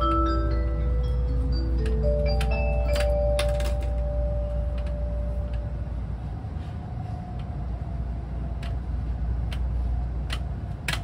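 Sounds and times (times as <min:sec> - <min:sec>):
onboard chime melody: 0:00.0 - 0:05.5
train interior rumble: 0:00.0 - 0:11.0.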